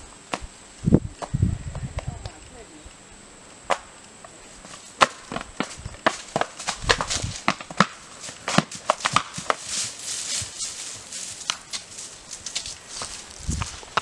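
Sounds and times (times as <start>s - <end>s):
hooves clopping on rock: 3.7s - 14.0s.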